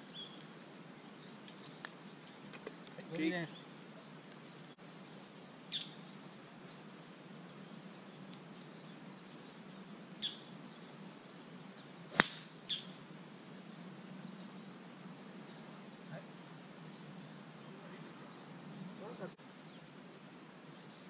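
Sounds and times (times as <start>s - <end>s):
bird chirps: 0.0s - 0.4s, 5.1s - 6.8s, 7.5s - 10.9s, 11.7s - 13.0s
golf club striking ball: 12.1s - 12.6s.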